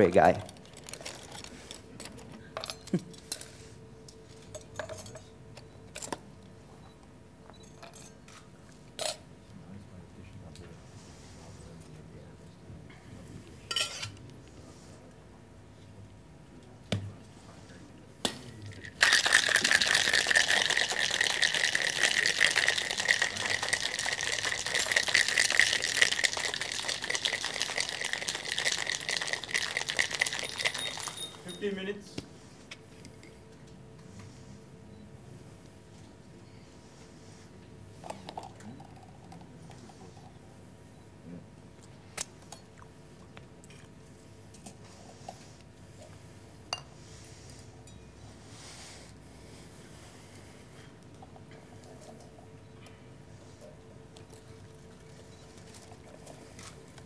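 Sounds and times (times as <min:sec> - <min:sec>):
cutlery and crockery clinking: 0:13.7 - 0:14.2, 0:30.4 - 0:31.7
ice rattling in cocktail shaker: 0:18.7 - 0:31.7.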